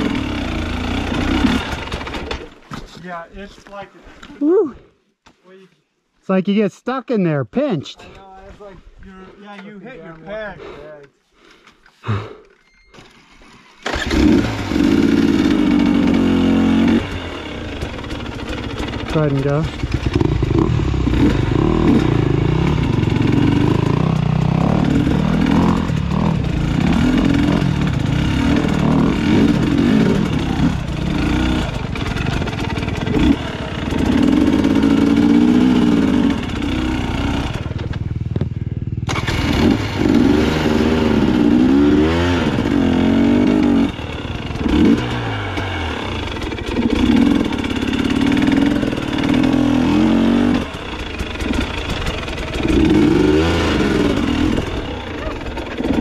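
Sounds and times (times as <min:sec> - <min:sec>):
dirt bike engine revving: 0:00.0 - 0:02.4, 0:13.8 - 0:56.0.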